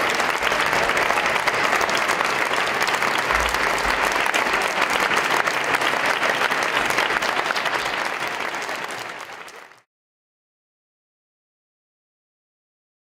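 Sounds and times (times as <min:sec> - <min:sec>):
audience applause: 0:00.0 - 0:09.9.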